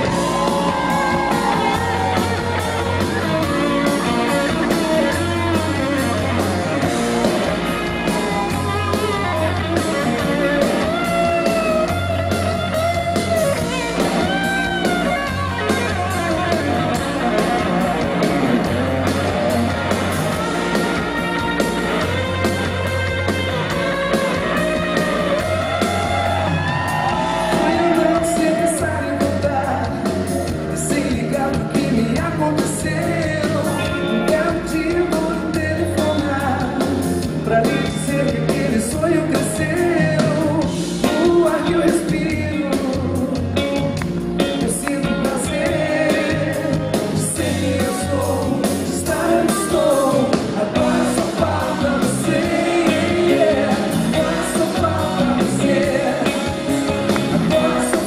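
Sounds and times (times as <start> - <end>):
electric guitar: 0.0 - 58.0
live pop-rock band: 0.0 - 58.0
woman singing lead: 25.2 - 30.0, 44.5 - 58.0.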